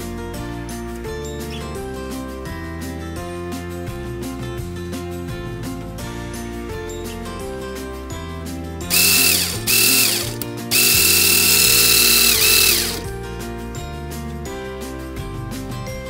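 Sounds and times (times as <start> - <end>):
background music: 0.0 - 16.0
motor and gears whining: 8.9 - 13.0.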